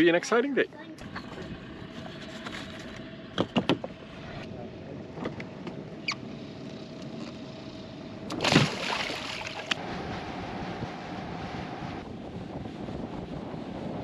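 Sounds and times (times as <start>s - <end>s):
faint steady motor hum: 0.0s - 14.0s
water sloshing along a boat hull: 8.3s - 9.8s
rush of water: 8.4s - 9.8s.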